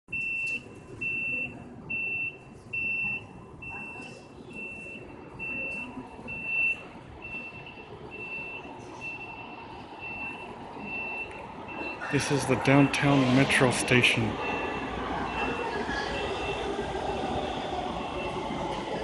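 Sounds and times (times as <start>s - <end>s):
steady background noise: 0.1s - 19.0s
high electronic beeps: 3.8s - 16.7s.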